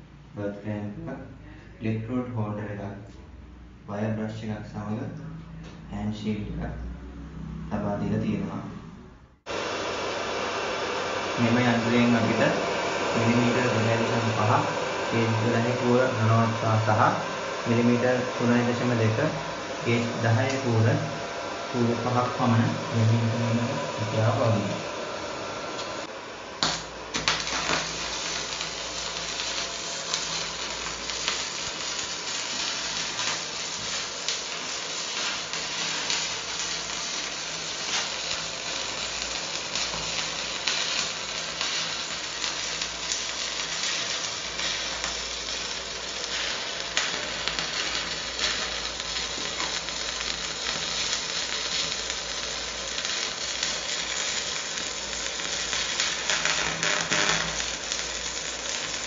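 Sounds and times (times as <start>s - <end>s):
welding arc crackling: 9.4s - 59.0s.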